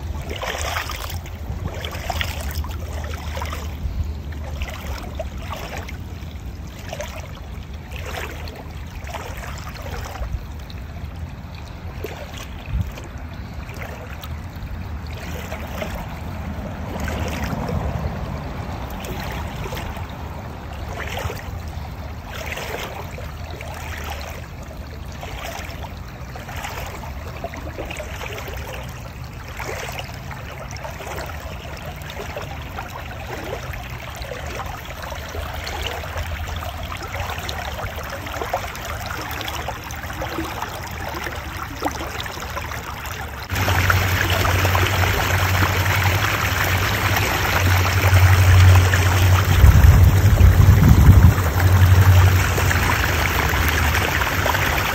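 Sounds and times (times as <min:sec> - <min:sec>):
creek trickling over stones: 0:00.0 - 0:54.9
low rumble: 0:43.5 - 0:54.9.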